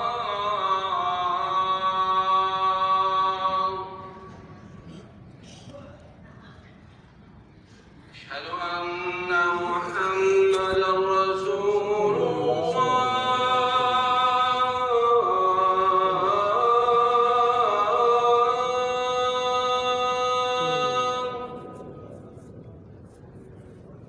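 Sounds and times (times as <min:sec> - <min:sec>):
man chanting call to prayer: 0:08.2 - 0:22.3.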